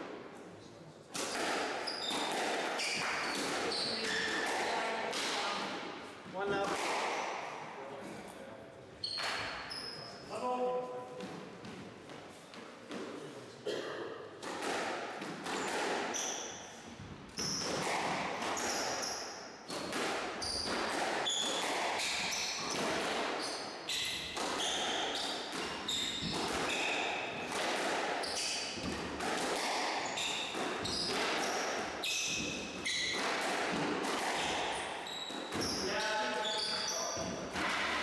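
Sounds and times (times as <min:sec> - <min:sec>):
squash ball hits: 0:01.1 - 0:07.6, 0:14.4 - 0:35.9, 0:36.7 - 0:38.0
shoes squeaking on wooden floor: 0:01.8 - 0:04.3, 0:18.5 - 0:27.5, 0:30.0 - 0:33.2, 0:34.2 - 0:37.7.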